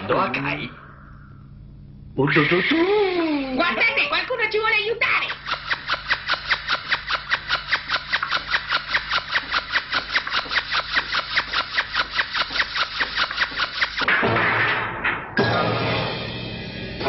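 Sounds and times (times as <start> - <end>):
rapid cartoon clicking: 5.3 - 14.1.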